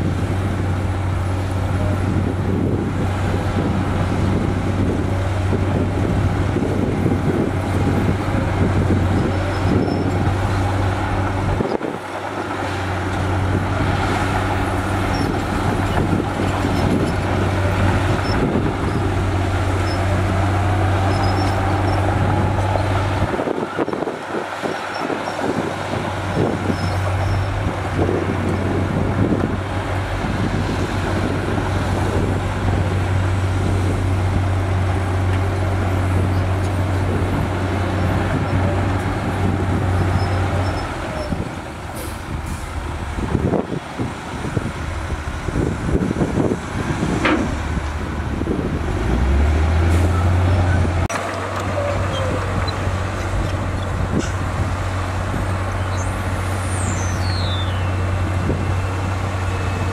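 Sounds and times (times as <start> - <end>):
bulldozer working: 0.0 - 59.9
dump truck diesel engine droning: 0.0 - 59.9.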